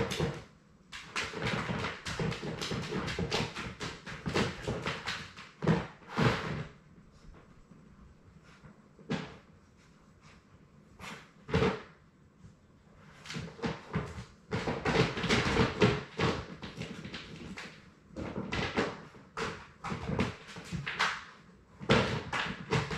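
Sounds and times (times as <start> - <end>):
puppies knocking and clattering: 0.0 - 6.6.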